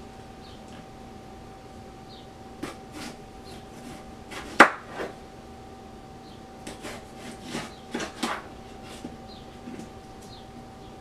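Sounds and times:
knife slicing cucumbers: 0:02.6 - 0:05.1, 0:06.7 - 0:09.1.

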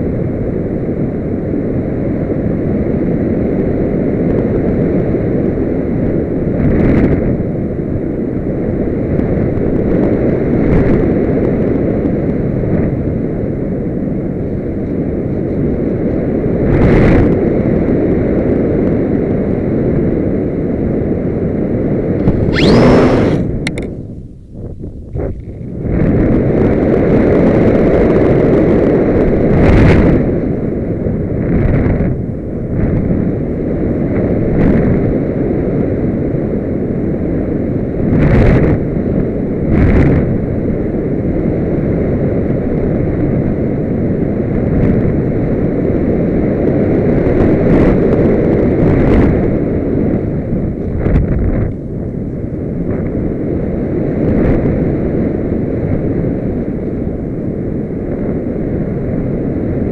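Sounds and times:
wind roaring over microphone: 0:00.0 - 0:59.9
sharp wind buffets: 0:20.4 - 0:59.9.

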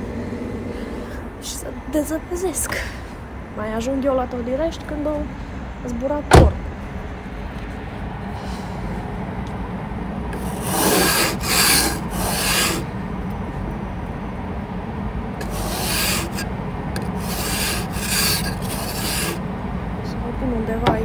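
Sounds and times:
snow brush sweeping over car: 0:10.4 - 0:12.9, 0:15.4 - 0:16.5, 0:17.1 - 0:19.4.

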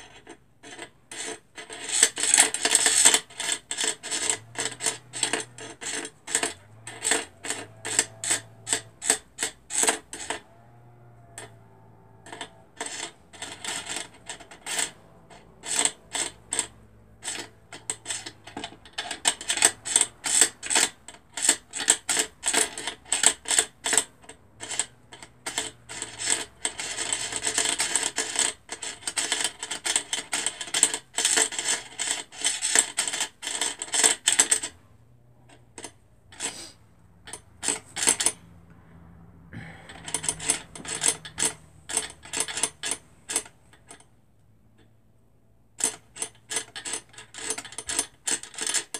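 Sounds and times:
thread rubbing on fingers: 0:36.3 - 0:38.6.

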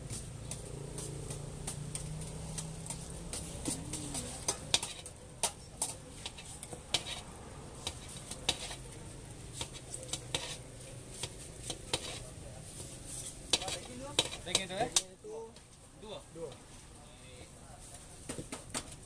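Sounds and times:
metal spatula scraping griddle: 0:00.0 - 0:15.1
light sizzle: 0:00.0 - 0:19.0.

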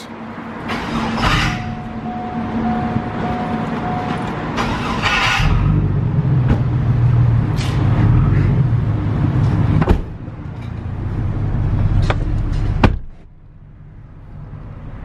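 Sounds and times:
pickup engine running: 0:00.8 - 0:15.0.

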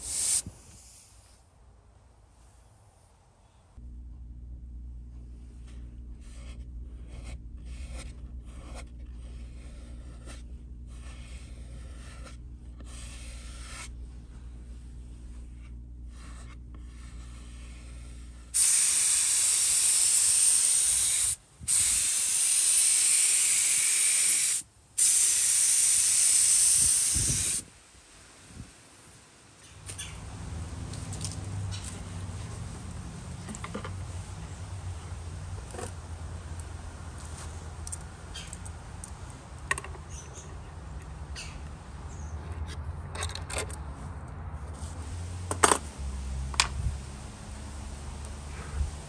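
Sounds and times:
paint spray gun hissing: 0:00.0 - 0:01.4, 0:18.6 - 0:27.7
steady low hum: 0:00.0 - 0:43.2.

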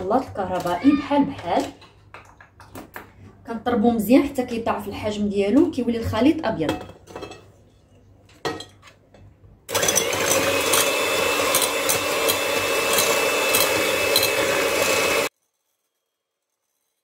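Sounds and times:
electric hand mixer whisking: 0:09.7 - 0:15.3.

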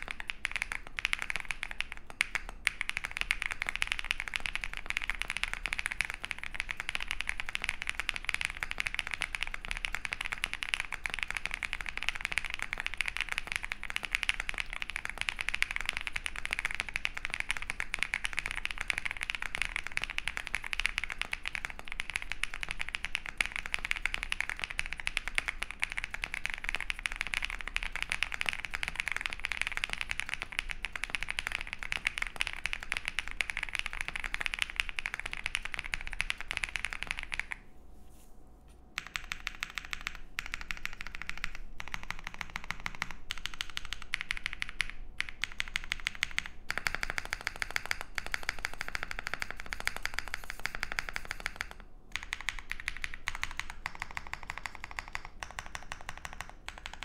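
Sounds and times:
mechanical keyboard typing: 0:00.0 - 0:37.6, 0:39.0 - 0:57.0.

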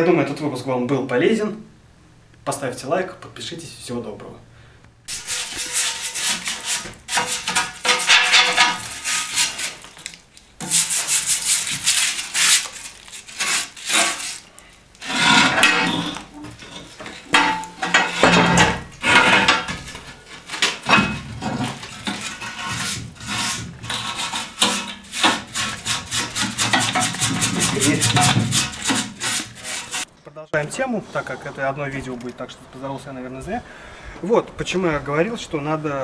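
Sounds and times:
scraping ash inside steel stove: 0:05.1 - 0:30.1.

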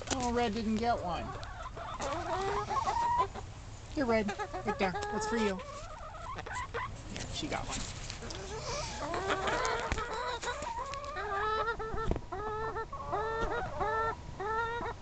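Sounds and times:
hens clucking: 0:00.0 - 0:15.0
hen repeated drawn-out calls: 0:08.2 - 0:15.0.

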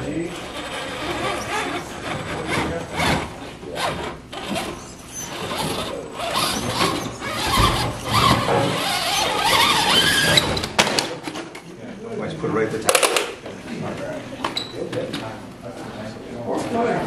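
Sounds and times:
electric motor and gears whining: 0:00.2 - 0:10.6.

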